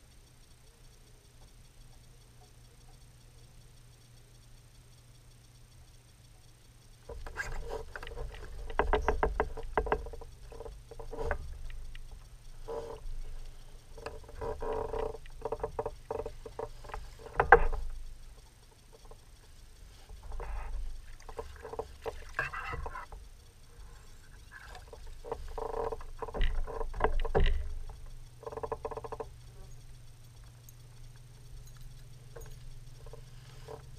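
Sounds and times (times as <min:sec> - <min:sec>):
spinning reel clicking: 0:00.0 - 0:33.9.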